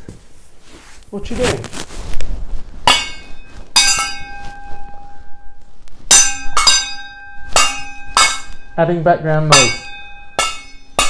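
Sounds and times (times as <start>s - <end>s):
metal pan clanging: 2.9s - 5.0s, 6.1s - 11.0s.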